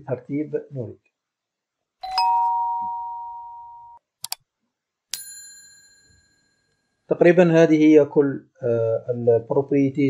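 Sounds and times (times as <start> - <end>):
bright bell ding: 2.0 - 4.0, 5.2 - 6.6
two-note doorbell chime: 2.0 - 4.0.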